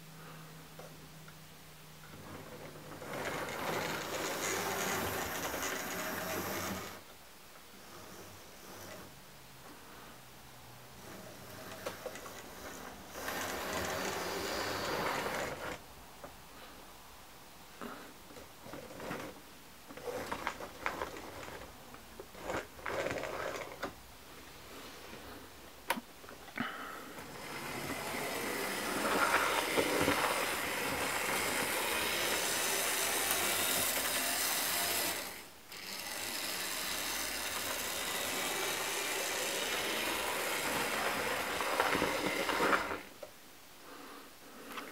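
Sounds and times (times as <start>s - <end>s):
wheels on rail: 2.0s - 7.1s, 7.8s - 9.9s, 10.7s - 15.9s, 20.0s - 24.0s, 26.6s - 43.3s
model train motor whirring: 2.2s - 7.0s, 7.8s - 9.1s, 11.0s - 15.8s, 20.0s - 24.0s, 27.2s - 43.2s.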